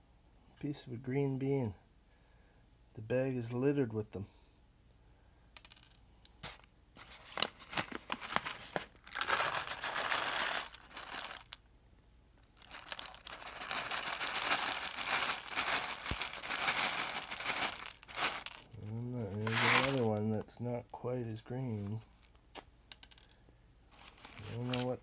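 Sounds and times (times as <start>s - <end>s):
bag crinkling: 7.2s - 11.5s, 12.6s - 18.6s, 19.4s - 20.1s
coffee beans rattling into glass bowl: 9.1s - 11.6s, 12.6s - 18.7s.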